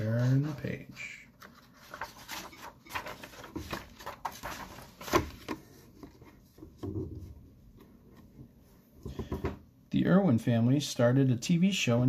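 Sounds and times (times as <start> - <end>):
paper rustling and crinkling: 0.0 - 6.6.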